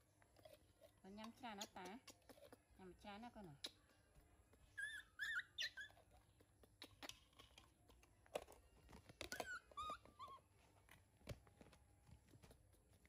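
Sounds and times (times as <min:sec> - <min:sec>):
baby monkey squeaking: 0:01.4 - 0:02.8, 0:03.6 - 0:07.4, 0:09.3 - 0:10.5.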